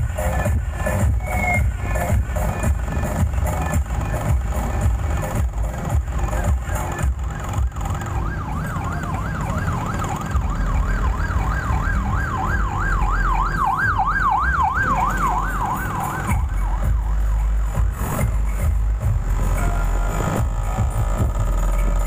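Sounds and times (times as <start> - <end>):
electronic dance music with bass: 0.0 - 7.7, 15.6 - 22.0
wailing siren effect: 6.3 - 17.2.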